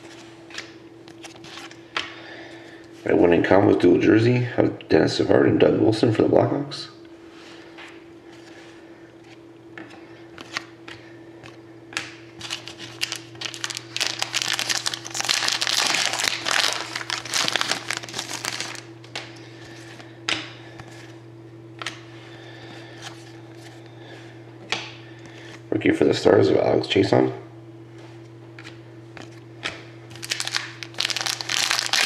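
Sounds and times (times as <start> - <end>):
foil wrappers crinkling: 12.4 - 18.9, 30.1 - 32.0.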